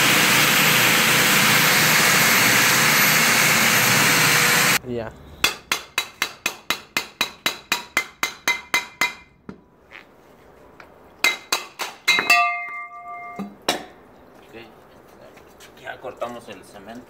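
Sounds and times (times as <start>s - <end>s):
hammer clanging on steel barrel: 11.2s - 13.9s.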